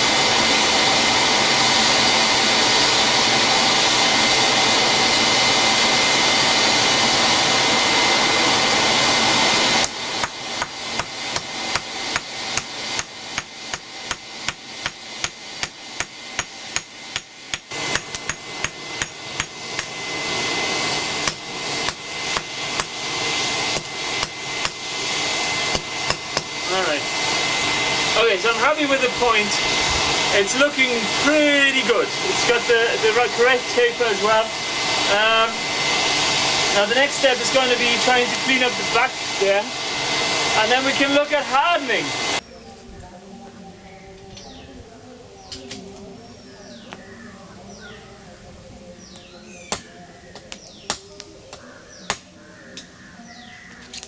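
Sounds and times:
forge air blower rushing: 0.0s - 42.5s
hammer striking steel bar: 10.2s - 19.9s.

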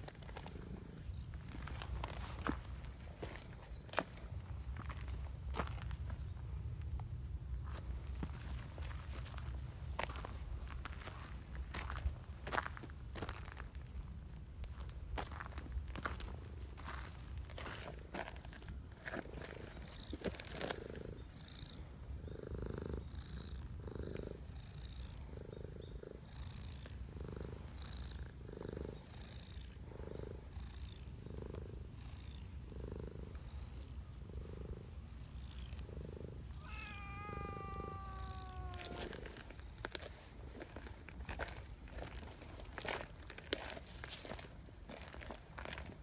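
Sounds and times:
cat purring: 20.6s - 39.6s
cat meowing: 36.6s - 39.4s.

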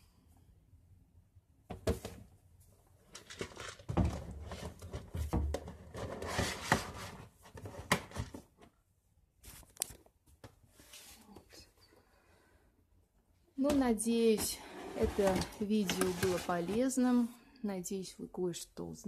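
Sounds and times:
rustling of medicine boxes: 2.9s - 8.7s, 13.6s - 17.3s.

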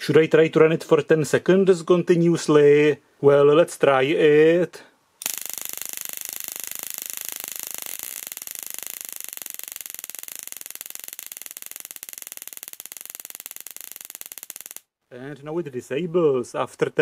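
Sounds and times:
stun gun crackling sparks: 5.2s - 14.9s.

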